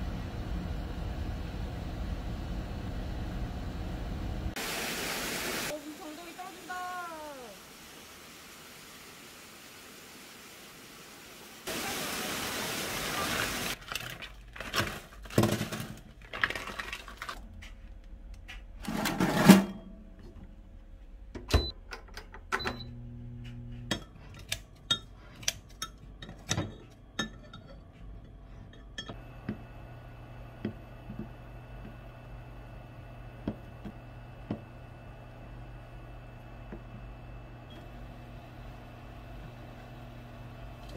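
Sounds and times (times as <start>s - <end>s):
countertop oven electric hum: 0.0s - 4.6s, 13.9s - 40.9s
utensils and containers clattering: 13.3s - 17.8s, 18.8s - 20.4s, 23.8s - 29.2s.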